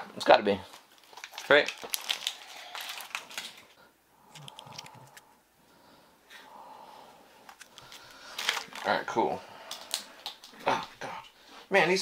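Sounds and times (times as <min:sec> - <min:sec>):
plastic toy packaging clicks: 0:01.0 - 0:03.6, 0:07.5 - 0:08.9.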